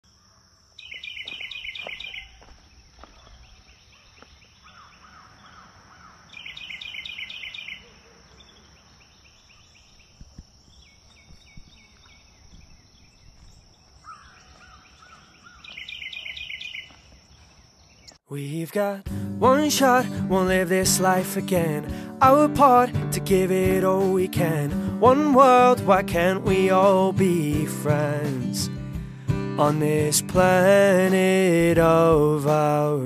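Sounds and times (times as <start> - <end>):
soft low bird calls: 0.1 - 18.2
songbird trilling: 0.8 - 2.5, 3.1 - 18.2.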